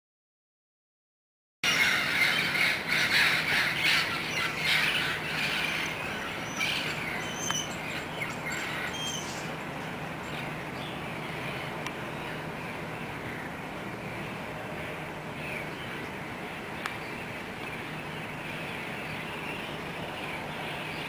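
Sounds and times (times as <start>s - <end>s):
parrots squawking: 1.6s - 9.5s.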